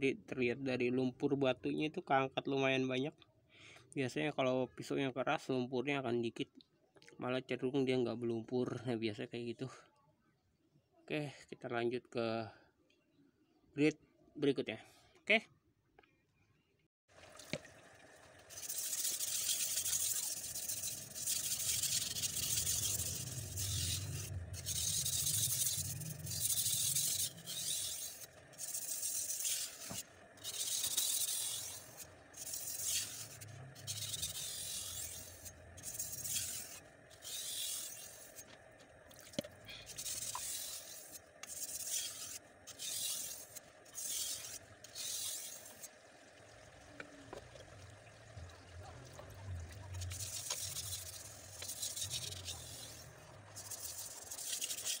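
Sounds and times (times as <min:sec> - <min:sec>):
knife blade scraping on whetstone: 0:18.5 - 0:38.5, 0:39.4 - 0:45.9, 0:50.0 - 0:55.0.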